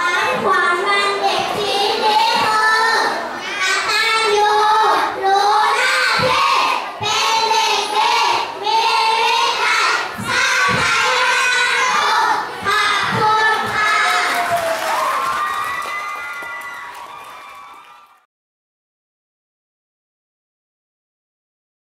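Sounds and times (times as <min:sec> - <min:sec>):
children singing into microphone: 0:00.0 - 0:14.3.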